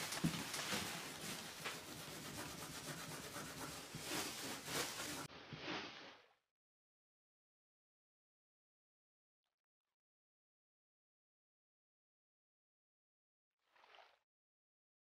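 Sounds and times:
scrubbing wooden floor: 0:00.0 - 0:06.2.

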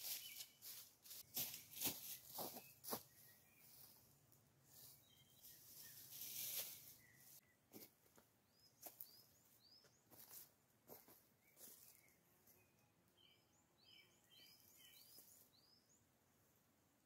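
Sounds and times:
moss rustling: 0:00.0 - 0:03.0, 0:04.7 - 0:07.4
footsteps on dry leaves: 0:00.0 - 0:04.0, 0:04.7 - 0:07.4, 0:10.1 - 0:12.0
bird chirping: 0:01.6 - 0:04.0, 0:04.7 - 0:07.7, 0:08.4 - 0:10.4, 0:11.4 - 0:16.2.

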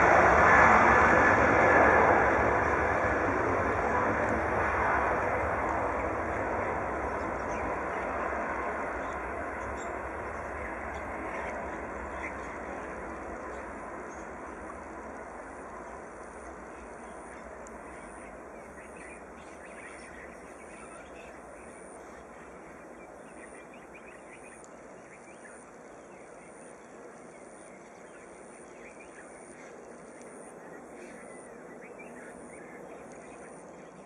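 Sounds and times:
distant jet taking off: 0:00.0 - 0:34.0
small birds chirping: 0:05.9 - 0:15.0, 0:15.8 - 0:34.0.

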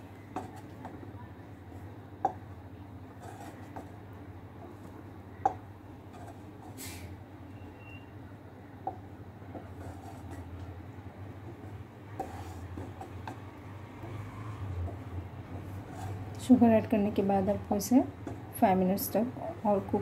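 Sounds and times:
steady low hum: 0:00.0 - 0:20.0
spatula stirring pudding in saucepan: 0:00.2 - 0:06.8, 0:08.8 - 0:17.0
spatula knocking against pan: 0:02.2 - 0:02.4, 0:05.4 - 0:05.6
brief hiss: 0:06.8 - 0:07.1.

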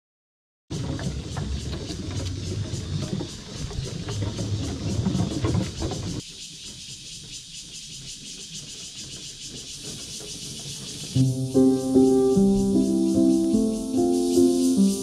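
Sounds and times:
bicycle rumbling over boardwalk: 0:00.7 - 0:06.2
steady high hiss: 0:11.0 - 0:15.0.

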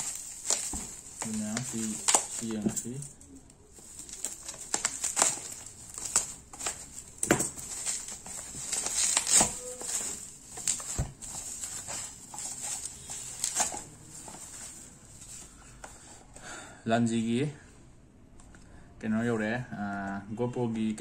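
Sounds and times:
bubble wrap crinkling: 0:00.0 - 0:15.9.

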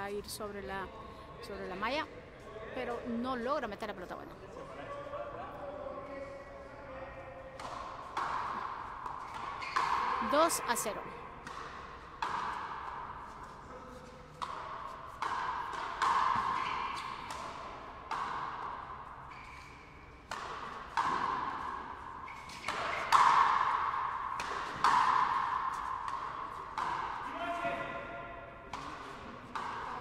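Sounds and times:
ball hits echoing in court: 0:07.6 - 0:13.4, 0:14.4 - 0:30.0.

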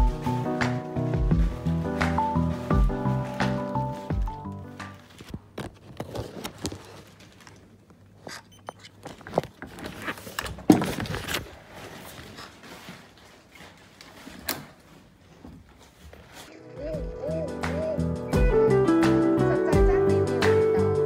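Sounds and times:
plastic shoe covers crinkling: 0:01.4 - 0:07.8.

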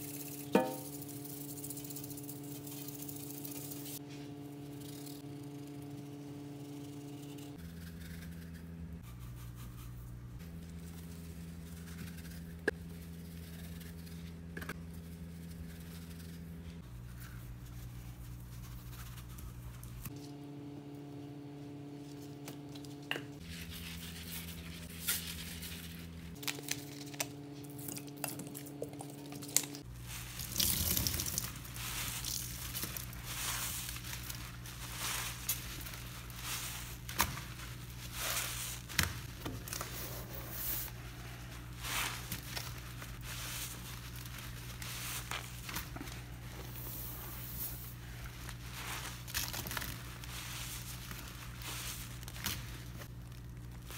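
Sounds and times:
sponge squeezing and scrubbing: 0:29.8 - 0:53.9.

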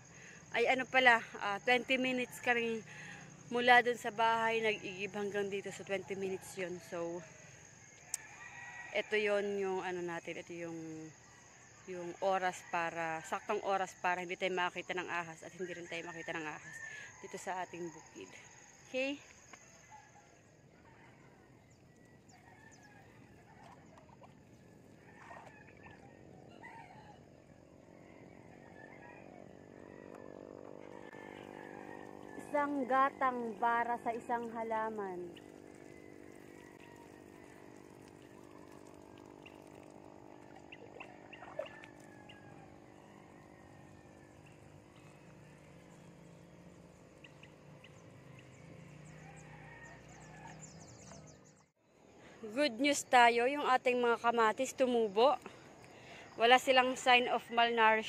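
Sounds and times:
water sprinkling onto soil: 0:35.2 - 0:40.6.

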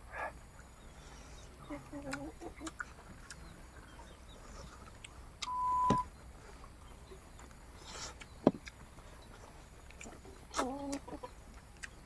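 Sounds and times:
electronic beep: 0:05.5 - 0:06.1.

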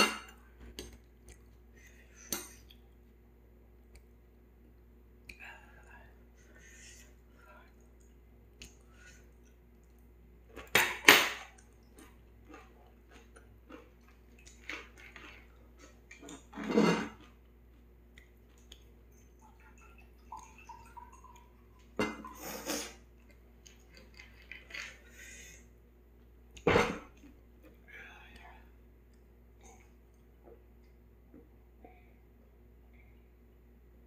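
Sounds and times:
chopsticks and dishes clattering: 0:16.3 - 0:17.3.

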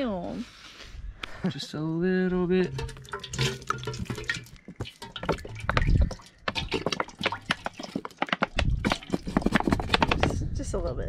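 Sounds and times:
oil pouring into a metal pot: 0:02.6 - 0:09.6.

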